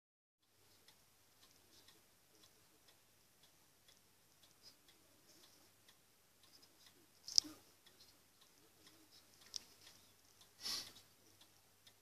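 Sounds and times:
wall clock ticking: 0.4s - 12.0s.

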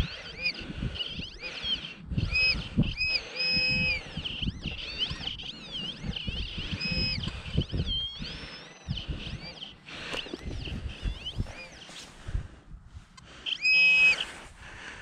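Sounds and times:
metal detector tone warbling: 2.3s - 11.8s, 13.5s - 14.2s.

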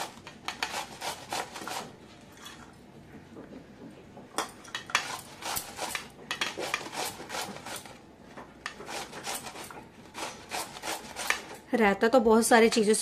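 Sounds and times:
cucumber scraping on metal grater: 0.5s - 1.9s, 5.0s - 7.9s, 8.7s - 11.6s.

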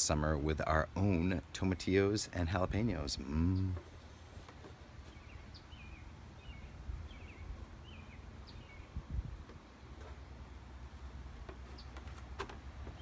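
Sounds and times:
low steady rumble: 0.0s - 11.6s
small bird chirping: 5.0s - 10.4s.

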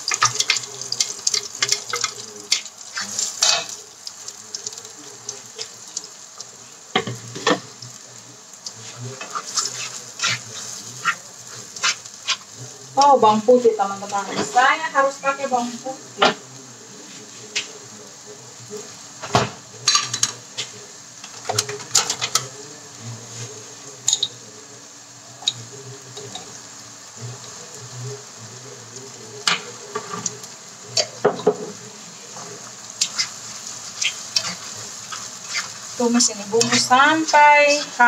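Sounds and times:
spice paste sizzling: 0.0s - 38.0s
spatula scraping pan: 0.1s - 3.8s, 8.8s - 12.6s, 29.5s - 38.0s.

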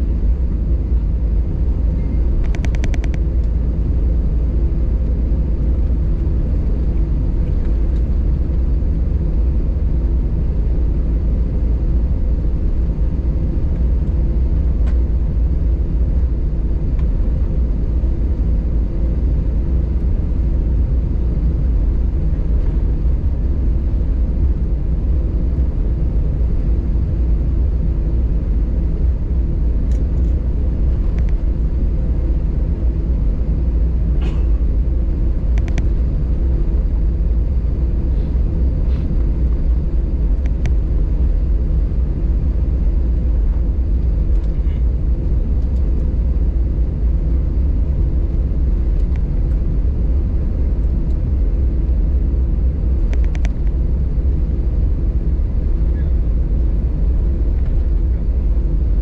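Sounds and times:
aircraft engines rumbling: 0.0s - 59.0s
steady hum: 0.0s - 59.0s.

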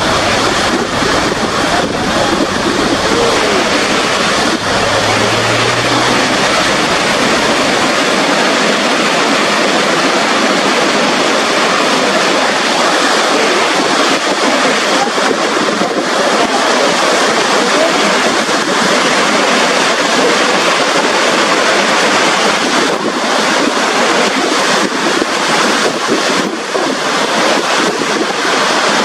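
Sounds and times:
low hum: 0.0s - 9.7s
waterfall roaring: 0.0s - 29.0s.

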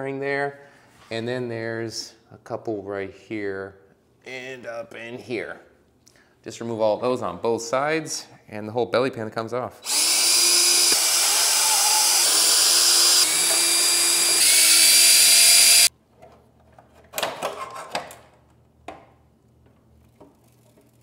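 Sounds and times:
cordless drill whirring: 9.8s - 15.9s.

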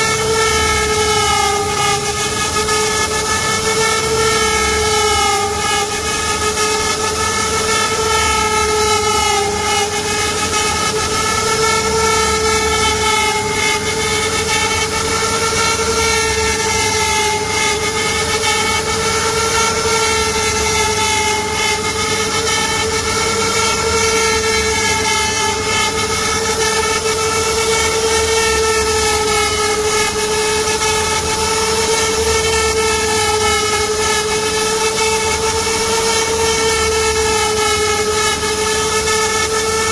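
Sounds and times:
hiss of wood cutting: 0.0s - 39.9s
router spindle whining: 0.0s - 39.9s.

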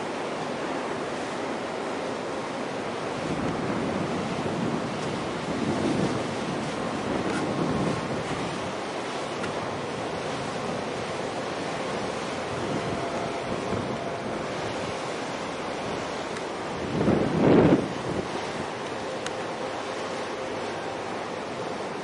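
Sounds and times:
rushing harbour water: 0.0s - 22.0s
wind buffeting microphone: 2.9s - 19.1s.

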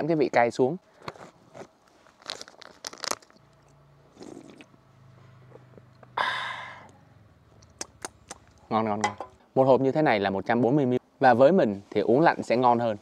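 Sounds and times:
man crunching snack: 1.0s - 4.8s
man exhaling breathily: 6.2s - 6.9s.

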